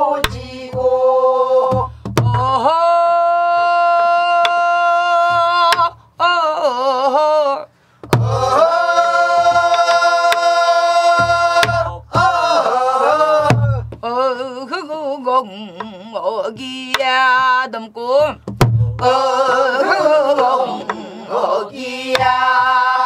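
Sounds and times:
men and women singing folk song: 0.0s - 23.0s
barrel drum strokes: 8.0s - 10.5s, 11.1s - 12.6s.

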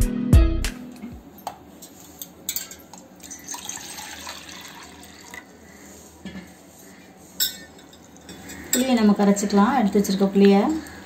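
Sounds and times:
water pouring into metal bowl: 3.3s - 5.5s.

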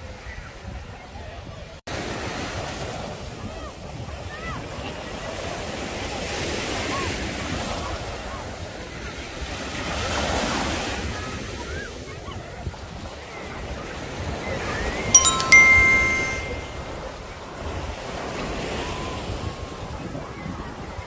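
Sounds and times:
bell-like chime sound effect: 15.2s - 17.0s.

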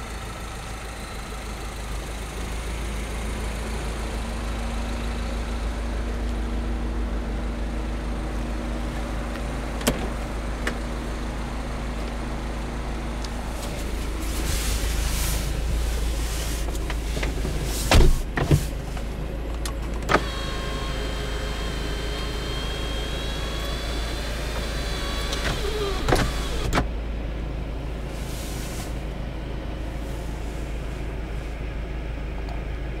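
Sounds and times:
power window motor whining: 20.0s - 26.9s.

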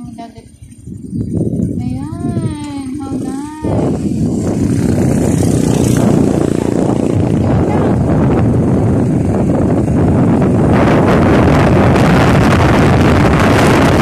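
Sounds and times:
motorcycle engine: 0.0s - 14.0s
wind buffeting microphone: 0.0s - 14.0s.

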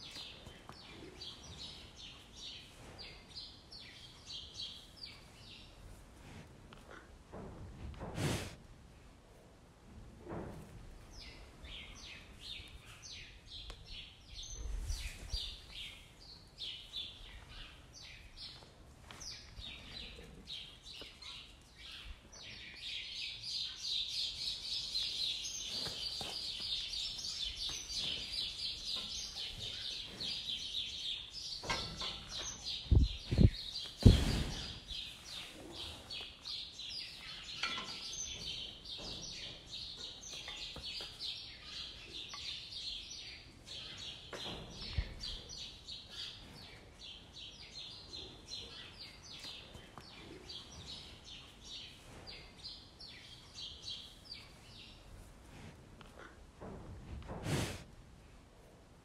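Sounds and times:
small birds chirping: 0.0s - 6.0s, 11.0s - 55.3s
low thumps: 32.8s - 34.8s.

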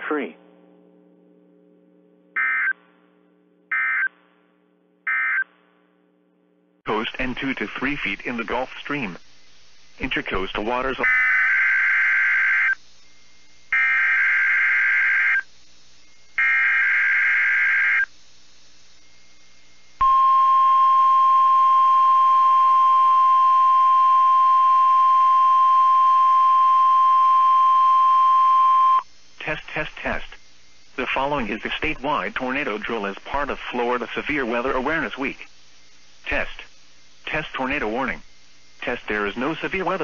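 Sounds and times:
steady alarm tone: 16.4s - 18.1s.

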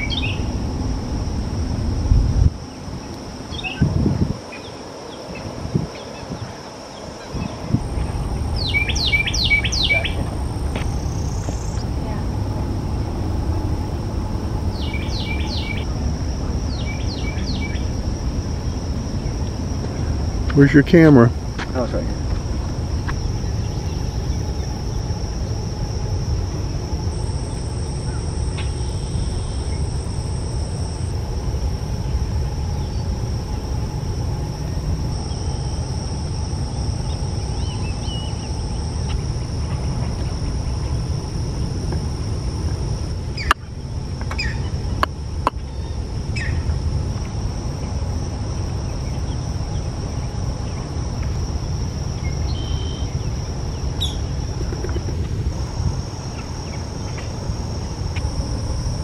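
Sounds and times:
insect chirring: 0.0s - 59.0s
low rumble: 7.3s - 59.0s.

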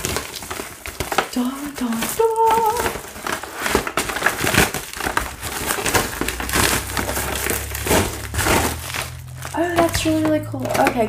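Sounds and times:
plastic packaging crinkling: 0.0s - 11.0s
person humming: 1.3s - 3.0s.

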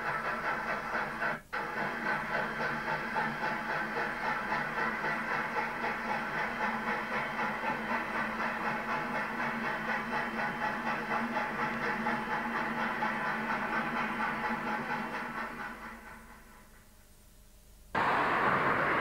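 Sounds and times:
steam locomotive exhaust chuffing: 0.0s - 17.2s, 17.9s - 19.0s
steady steam hiss: 17.9s - 19.0s.

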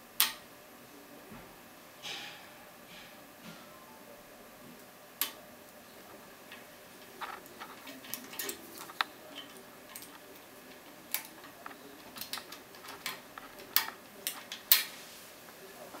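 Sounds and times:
lock pick clicking and scraping: 7.2s - 14.9s.

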